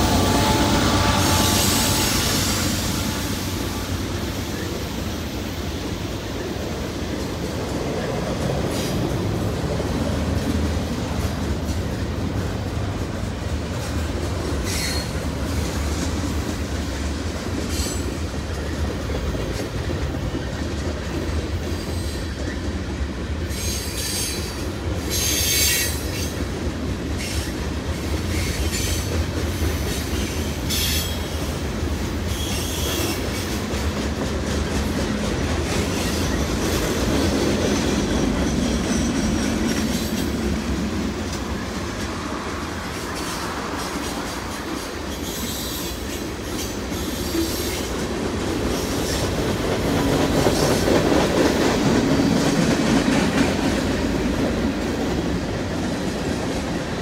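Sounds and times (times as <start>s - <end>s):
train wheels rumbling on track: 0.0s - 57.0s
high-pitched wheel squeal: 0.1s - 3.3s.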